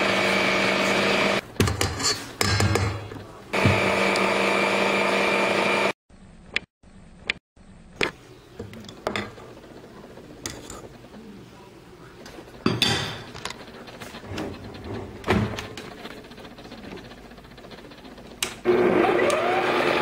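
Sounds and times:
stand mixer running: 0:00.0 - 0:01.4, 0:03.5 - 0:06.0, 0:12.5 - 0:20.0.

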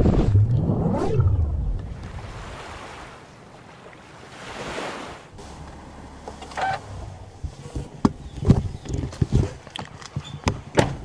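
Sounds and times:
whoosh: 0:00.0 - 0:02.7.

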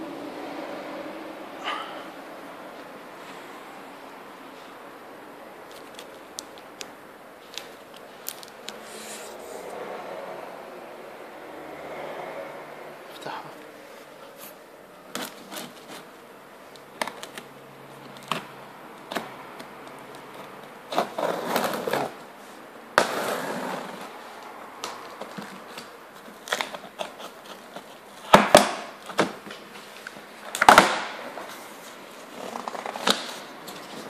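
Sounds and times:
packing tape and cardboard tearing: 0:05.7 - 0:06.8, 0:15.1 - 0:16.1, 0:24.8 - 0:34.0.

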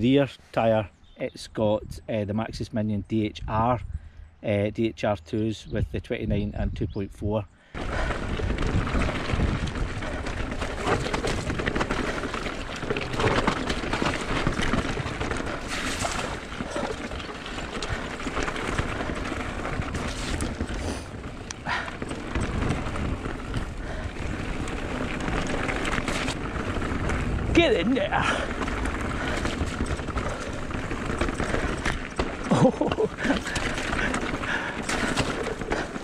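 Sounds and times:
bike tyres rolling on dirt: 0:07.6 - 0:36.0
wind on microphone: 0:07.8 - 0:11.8
bike knocks and rattles: 0:07.8 - 0:36.0.

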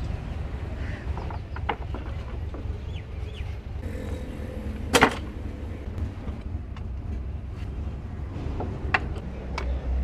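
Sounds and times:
steady low rumble: 0:03.6 - 0:09.6.

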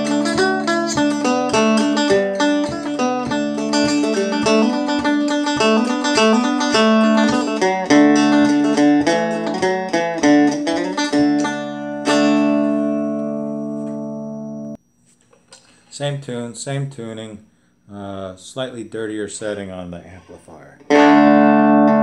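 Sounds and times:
amplified banjo picking: 0:00.0 - 0:14.8, 0:20.8 - 0:22.0.

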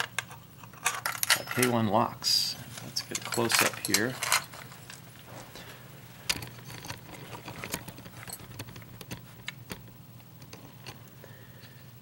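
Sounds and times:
low steady hum: 0:00.0 - 0:12.0
keys clinking: 0:00.7 - 0:01.8, 0:03.0 - 0:09.8.

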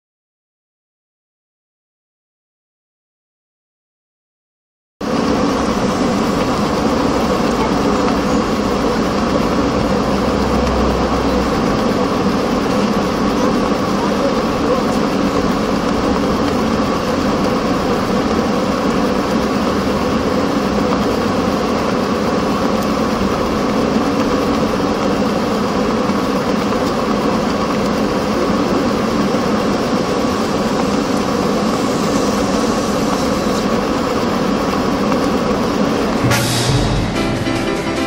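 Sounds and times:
electric blower fan running: 0:05.0 - 0:38.0.

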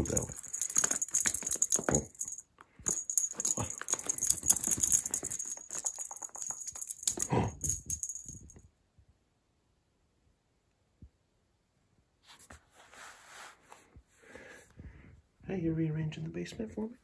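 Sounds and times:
cat toy rattling: 0:00.0 - 0:08.6.

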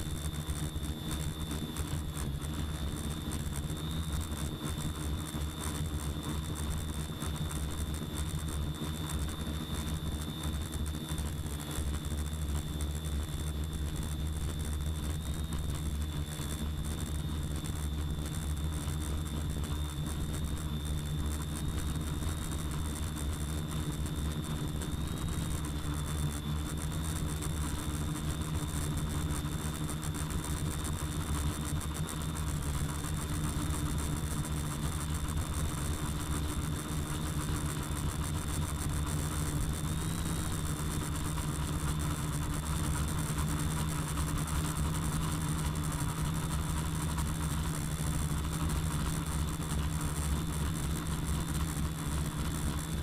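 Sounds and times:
quadcopter motors humming: 0:00.0 - 0:53.0.

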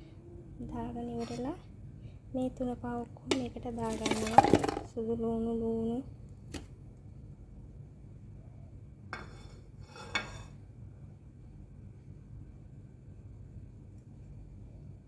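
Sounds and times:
clattering knocks on pot: 0:03.3 - 0:04.9.

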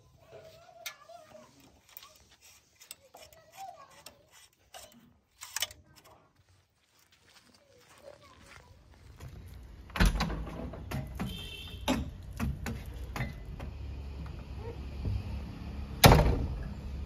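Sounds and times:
knocks and clunks: 0:09.8 - 0:15.4.

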